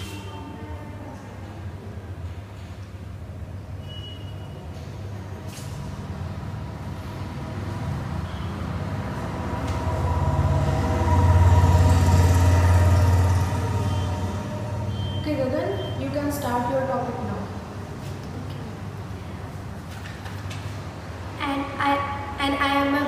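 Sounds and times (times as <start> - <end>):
low engine rumble: 6.2 - 16.6.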